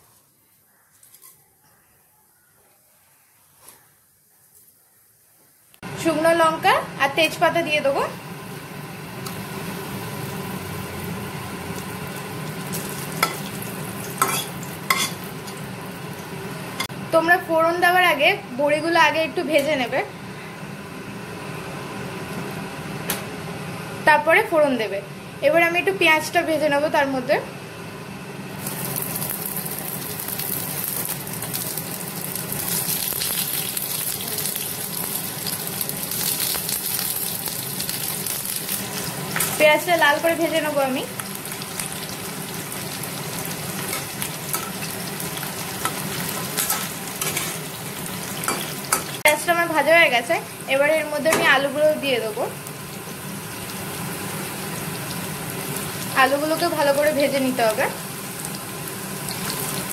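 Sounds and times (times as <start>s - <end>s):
spices sizzling in hot oil: 7.1s - 17.0s, 28.6s - 59.9s.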